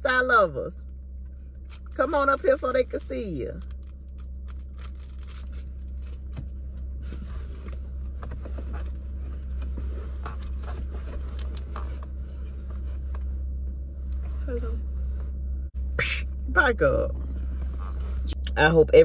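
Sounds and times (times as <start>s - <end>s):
car idling low rumble: 0.0s - 19.0s
rustling and scraping: 3.6s - 15.5s, 17.2s - 18.4s.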